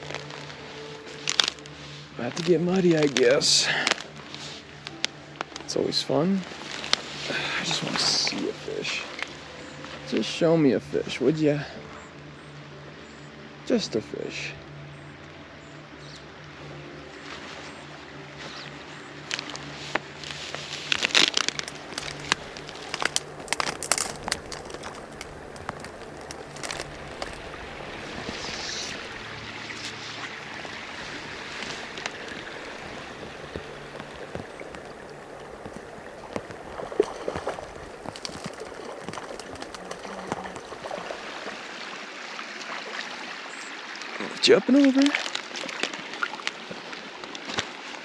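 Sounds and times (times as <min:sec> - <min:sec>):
rain falling on pond: 0:00.0 - 0:09.4, 0:19.2 - 0:48.0
crackles and rustles of movement: 0:00.0 - 0:11.2, 0:16.0 - 0:41.7, 0:45.1 - 0:48.0.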